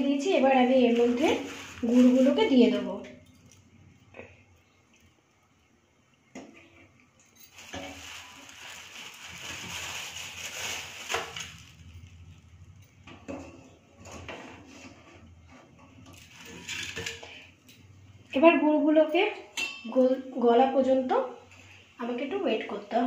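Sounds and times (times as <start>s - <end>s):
rustling: 0.7s - 2.8s, 7.2s - 12.5s.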